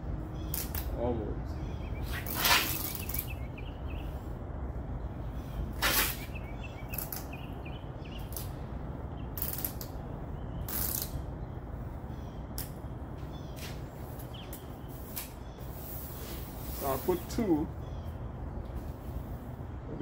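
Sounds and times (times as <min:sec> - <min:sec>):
steady low hum: 0:00.0 - 0:20.0
masking tape ripping: 0:02.1 - 0:03.3, 0:05.8 - 0:06.3, 0:09.4 - 0:10.0, 0:10.6 - 0:11.2.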